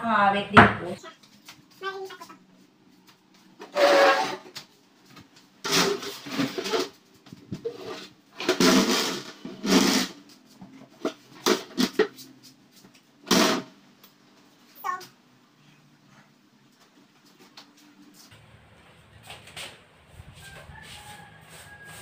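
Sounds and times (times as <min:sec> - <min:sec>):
household items rustling and clattering: 0:03.4 - 0:13.6.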